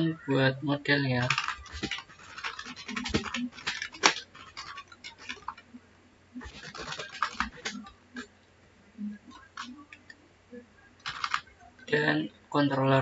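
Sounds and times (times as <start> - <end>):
typing on computer keyboard: 1.2 - 5.6, 6.4 - 8.3, 9.3 - 10.1, 11.0 - 11.6.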